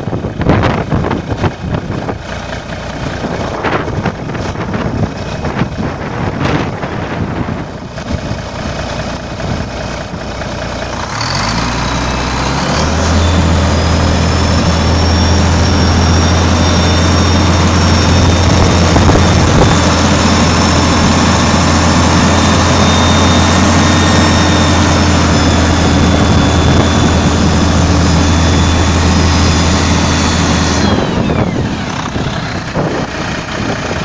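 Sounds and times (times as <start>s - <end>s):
diesel truck engine droning: 0.0s - 34.0s.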